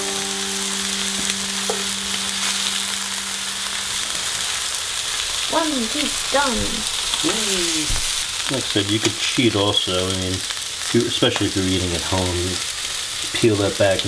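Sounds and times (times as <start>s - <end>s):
steady low tone: 0.0s - 7.7s
fish fillets sizzling in a pan: 0.0s - 14.0s.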